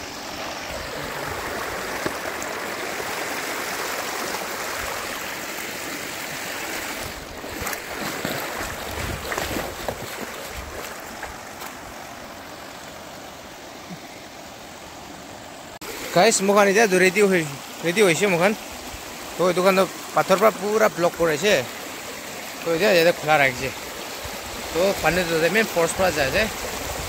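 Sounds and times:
stream running over stones: 0.0 - 27.0
stones splashing and knocking: 1.6 - 2.5, 7.0 - 11.8.

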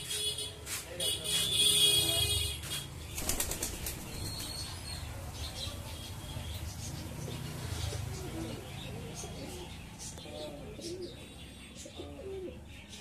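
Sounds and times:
pigeon wings flapping: 3.1 - 4.3.

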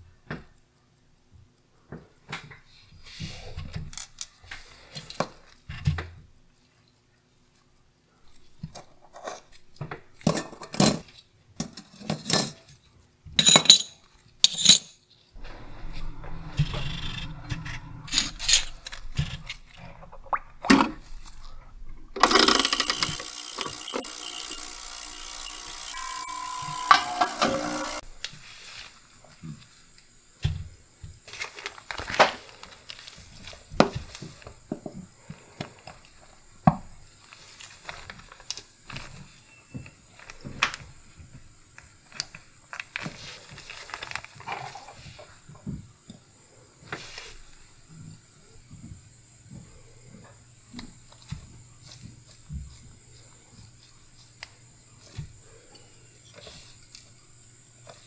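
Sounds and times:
faint low hum: 15.4 - 22.2
thin plastic crinkling: 31.3 - 33.2, 42.1 - 44.9.

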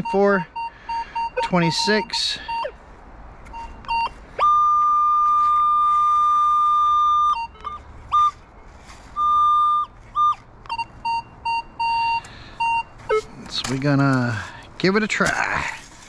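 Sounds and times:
metal detector tones: 0.0 - 2.7, 3.5 - 8.4, 9.2 - 14.3
short beeps: 0.0 - 2.8, 3.5 - 5.9, 9.2 - 13.3.

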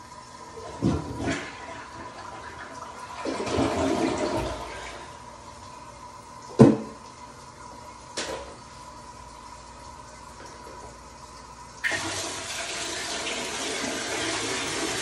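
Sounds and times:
water sloshing and gurgling: 0.6 - 5.4.

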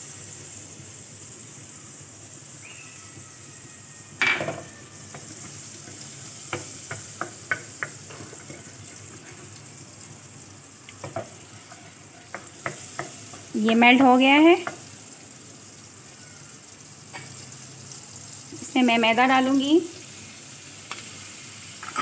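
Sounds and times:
margarine sizzling in a pan: 0.0 - 22.0
spatula tapping and scraping pan: 4.3 - 9.4, 11.0 - 14.9
spatula knocking against pan: 5.9 - 8.3, 12.3 - 14.9.

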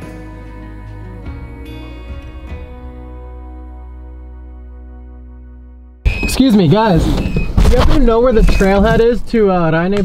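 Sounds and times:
soft instrumental music: 0.0 - 6.8.

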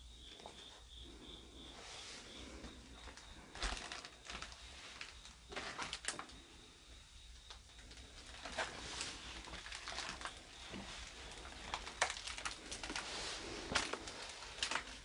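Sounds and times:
footsteps on debris: 3.0 - 6.2, 8.4 - 15.0.

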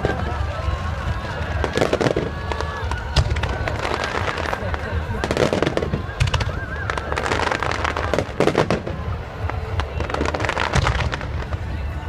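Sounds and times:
fireworks crackling pops: 0.0 - 12.0
loud firework bangs: 0.0 - 12.0.

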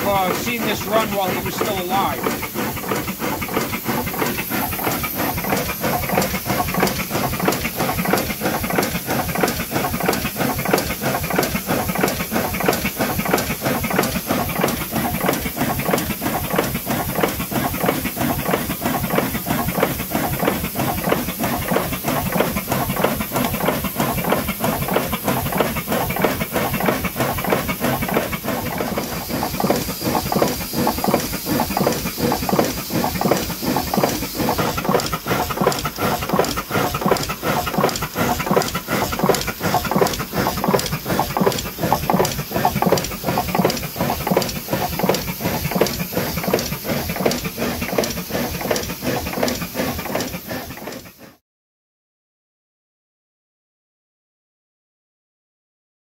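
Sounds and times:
steam engine running: 0.0 - 51.4
steam hissing: 0.0 - 51.4.

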